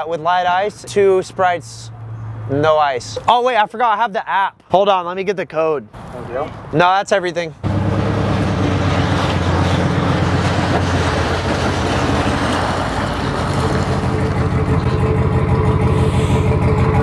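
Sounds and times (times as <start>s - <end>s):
engine low pulsing hum: 7.6s - 17.0s
rushing noise: 7.7s - 17.0s.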